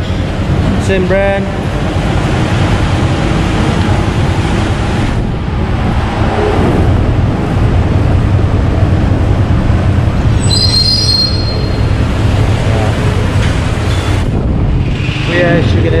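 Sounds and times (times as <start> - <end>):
motor vehicle engines: 0.0 - 16.0
high-pitched squeal: 10.2 - 15.8.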